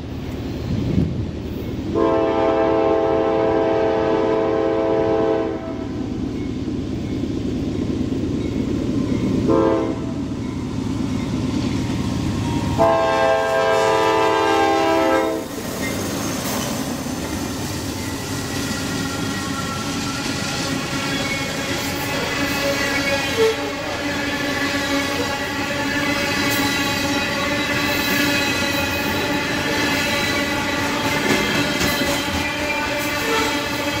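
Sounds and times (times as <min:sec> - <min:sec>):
train wheel noise: 0:00.0 - 0:34.0
locomotive air horn blasts: 0:01.9 - 0:05.9, 0:09.5 - 0:10.2, 0:12.7 - 0:15.5, 0:23.2 - 0:28.0, 0:32.3 - 0:34.0.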